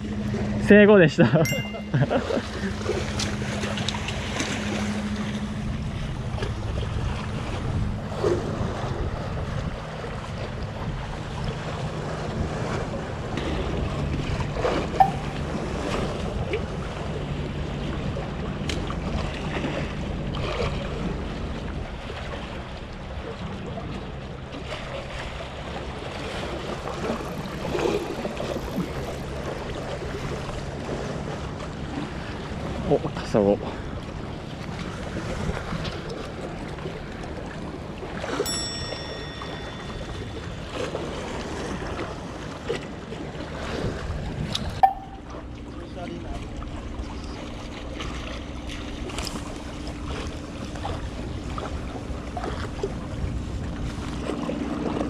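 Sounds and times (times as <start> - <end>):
steady low drone: 0.0 - 21.6, 37.6 - 53.8
wind buffeting microphone: 5.7 - 14.6.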